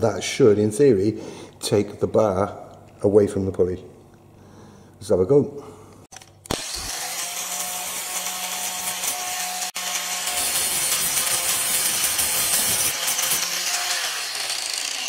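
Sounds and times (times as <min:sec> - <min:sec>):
angle grinder grinding steel: 0:06.5 - 0:15.0.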